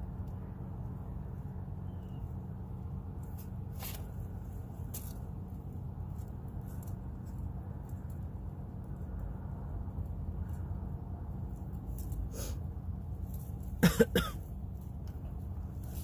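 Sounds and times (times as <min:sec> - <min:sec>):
steady low rumble: 0:00.0 - 0:16.0
cord rustling in hands: 0:03.0 - 0:13.8, 0:14.4 - 0:16.0.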